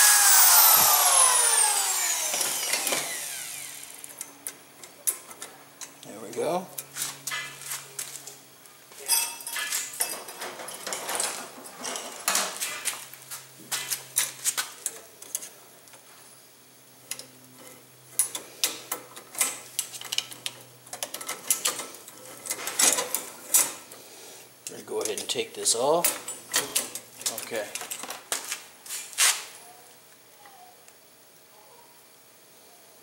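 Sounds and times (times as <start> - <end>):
metallic clinking and scraping: 9.0 - 15.6.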